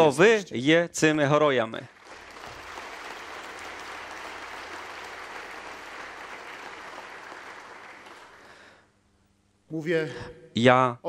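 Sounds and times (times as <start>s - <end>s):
crowd applauding: 1.8s - 8.8s.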